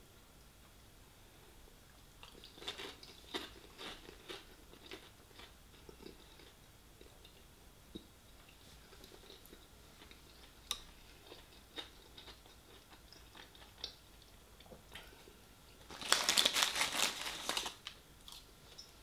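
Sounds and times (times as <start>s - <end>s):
paper bag rustling: 15.9s - 17.9s.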